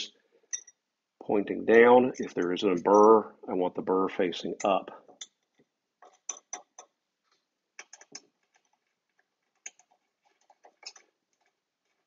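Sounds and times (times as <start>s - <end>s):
faint metal clicks and taps: 4.6s - 12.0s.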